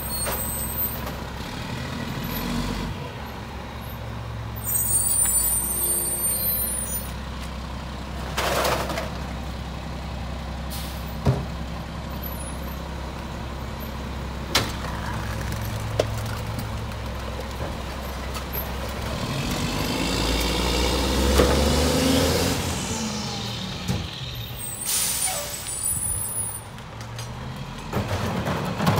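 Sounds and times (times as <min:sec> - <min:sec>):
recycling clunking into hopper: 0:08.2 - 0:09.3, 0:27.1 - 0:28.9.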